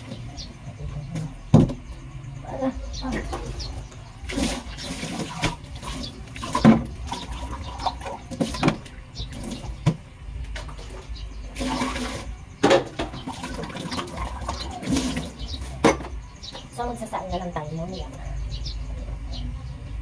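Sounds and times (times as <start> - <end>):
objects knocking on counter: 1.5 - 1.8
water splashing in sink: 4.2 - 16.1.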